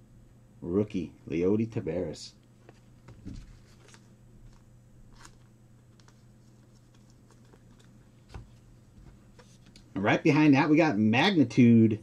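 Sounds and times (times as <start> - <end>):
steady low hum: 0.0 - 12.0
faint clicks and rustles: 2.5 - 9.9.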